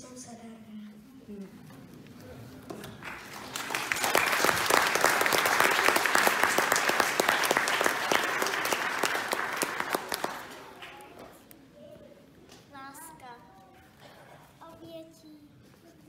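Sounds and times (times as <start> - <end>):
audience applauding: 2.8 - 11.2.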